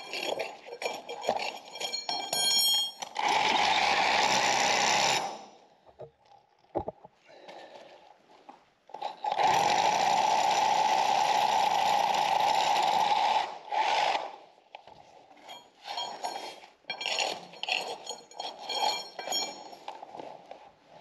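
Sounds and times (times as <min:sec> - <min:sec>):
drill bit scraping and rattling: 0:00.0 - 0:02.3, 0:15.4 - 0:20.0
rotary hammer drilling concrete: 0:03.0 - 0:05.5, 0:09.0 - 0:14.4, 0:16.1 - 0:19.7.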